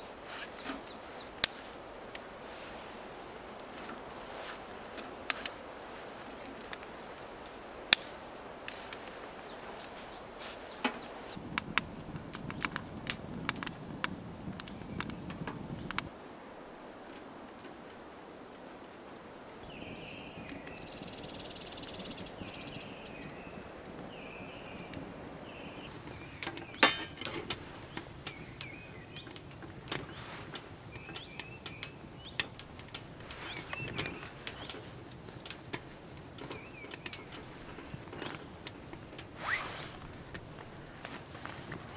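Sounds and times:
bird calling: 0.0 - 1.9, 7.8 - 11.4, 19.6 - 34.9
sharp clicks and snaps: 7.9 - 9.1, 10.8 - 16.1, 26.4 - 39.3.

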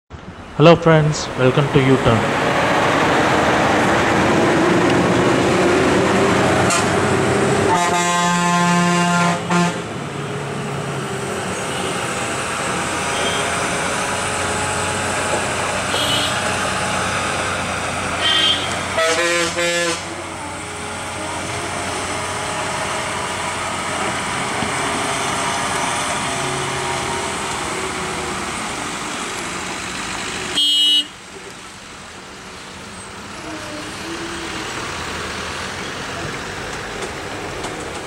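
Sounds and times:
pulsing vehicle horn: 7.7 - 9.8, 13.1 - 13.6, 15.8 - 16.6, 18.2 - 20.2, 30.6 - 31.2
vehicle horn: 7.7 - 9.8, 13.1 - 13.5, 15.9 - 16.6, 18.2 - 20.2, 30.6 - 31.2
lorry engine running: 9.8 - 30.6.

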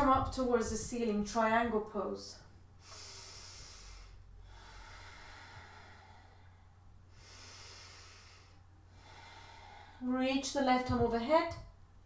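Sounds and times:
steady low hum: 0.0 - 12.0
woman breathing through nose: 2.8 - 10.0.

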